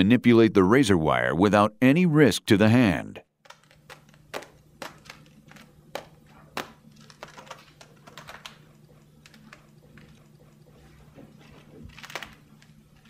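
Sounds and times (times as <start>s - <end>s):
razor wire clicking on glove: 3.4s - 13.0s.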